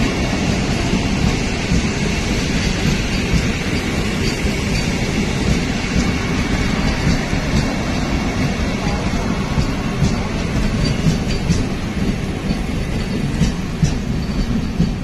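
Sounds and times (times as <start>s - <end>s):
train wheels rumbling on rails: 0.0s - 15.0s.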